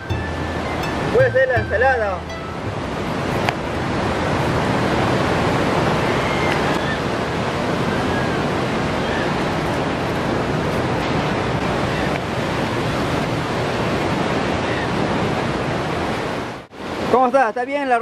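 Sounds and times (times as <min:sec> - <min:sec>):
surf washing over rocks: 0:00.0 - 0:18.0.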